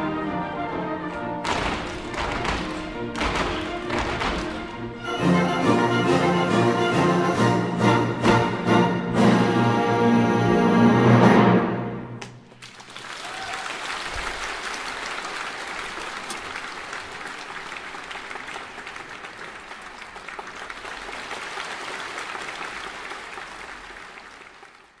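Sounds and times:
audience applauding: 1.4 - 6.0, 12.4 - 25.0.

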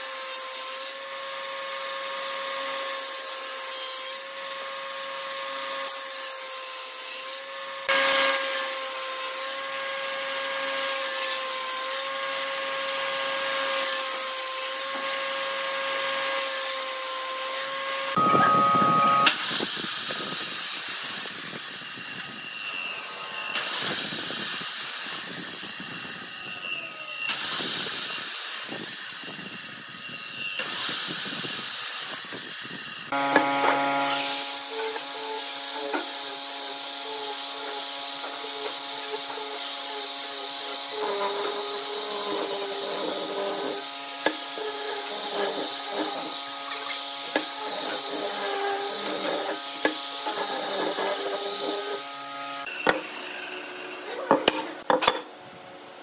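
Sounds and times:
table saw whining: 0.0 - 55.2
chop saw cutting wood: 5.4 - 55.3
saw cutting wood hiss: 18.9 - 54.1.

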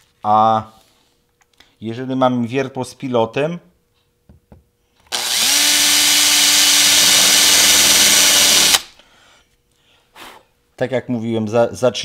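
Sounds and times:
drill bit boring into particleboard: 5.1 - 8.9
power drill motor whine: 5.1 - 9.0.

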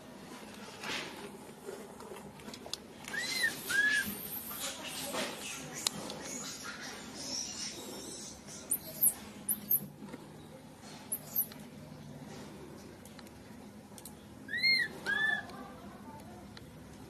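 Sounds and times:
monkey rising and falling cries: 3.1 - 4.3, 14.5 - 15.5
infant monkey squeaking: 3.1 - 9.8, 11.1 - 11.5, 14.5 - 15.5.

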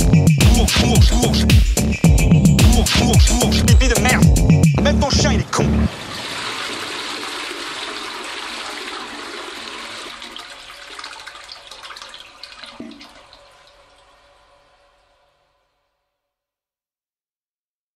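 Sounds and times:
music: 0.0 - 5.9
rushing water: 5.4 - 15.2.

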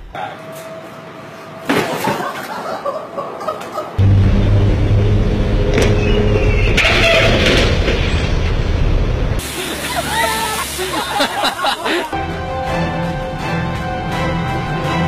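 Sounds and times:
city traffic: 3.2 - 15.0.

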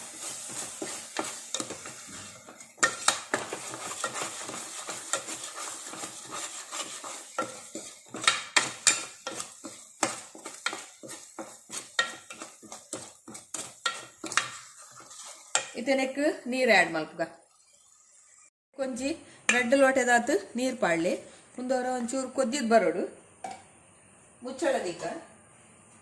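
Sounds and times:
spatula scraping a pot: 0.0 - 15.8
paste sizzling: 0.0 - 16.4.

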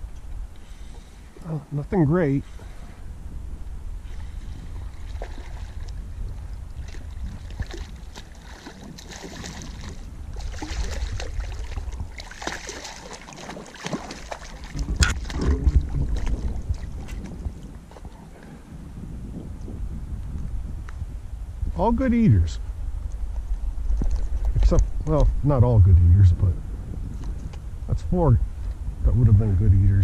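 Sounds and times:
wind on microphone: 0.0 - 30.0
water splashing: 4.9 - 6.0, 6.7 - 18.1.

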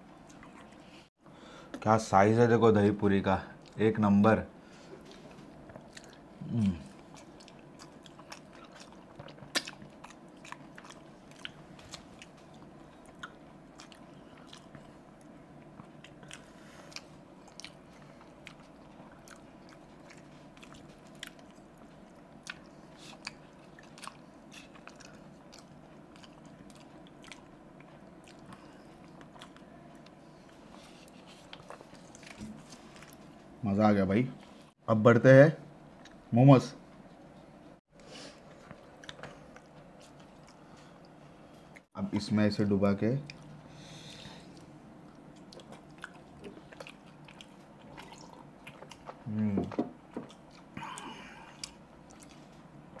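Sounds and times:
chewing and crunching: 0.1 - 1.0, 5.0 - 33.5, 38.3 - 41.9, 43.2 - 53.0
person humming: 6.4 - 7.0.

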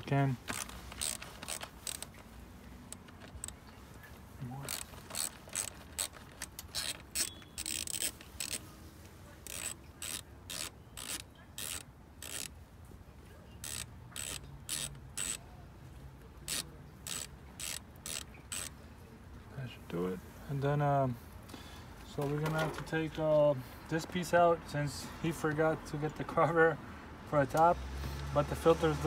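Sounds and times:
ratchet wrench clicking: 0.5 - 2.2, 4.7 - 8.7, 9.4 - 12.6, 13.6 - 15.4, 16.4 - 18.8.

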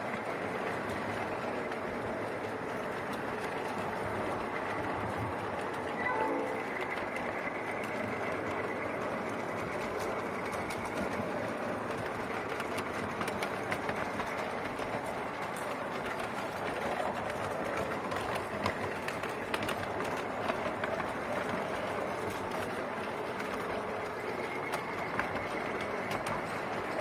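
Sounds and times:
train wheels rumbling on rail: 0.0 - 27.0
wheels clicking over rail joints: 0.0 - 27.0.

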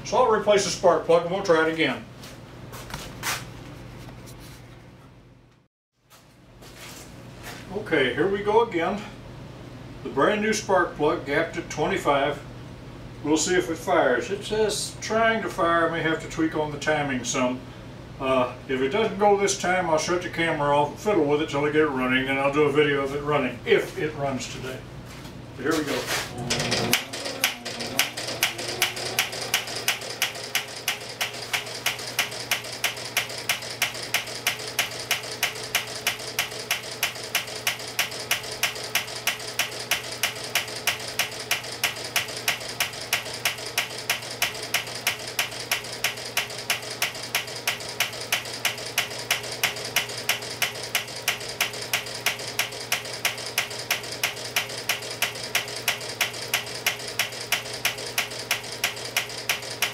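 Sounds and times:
electric motor hum: 25.6 - 59.9
engine sharp ticks: 26.6 - 59.9.

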